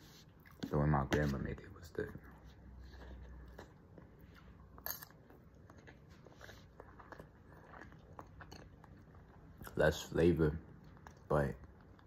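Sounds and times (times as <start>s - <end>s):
person chewing: 2.3s - 9.8s.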